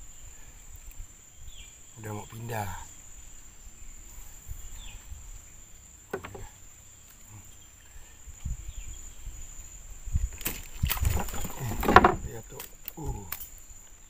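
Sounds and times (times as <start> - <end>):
faint chirps: 0.0 - 9.9, 11.2 - 14.0
soft low knocks: 6.1 - 6.6.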